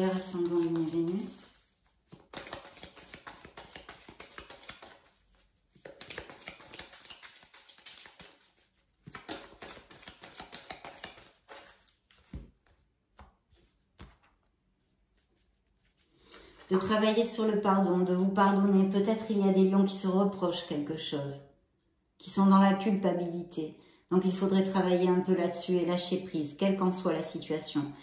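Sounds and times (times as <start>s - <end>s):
cards being shuffled: 0.0s - 14.5s, 15.1s - 16.7s.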